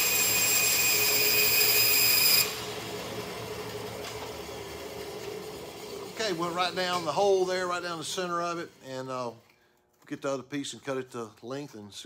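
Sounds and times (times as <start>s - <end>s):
bandsaw whining: 0.0s - 9.4s.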